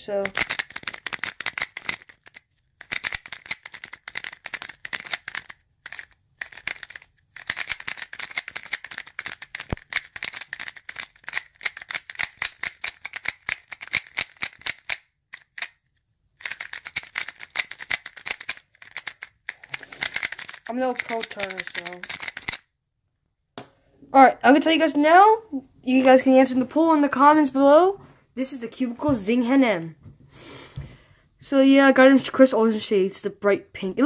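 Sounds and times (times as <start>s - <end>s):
plastic cube clicking and clacking: 0.1s - 22.7s.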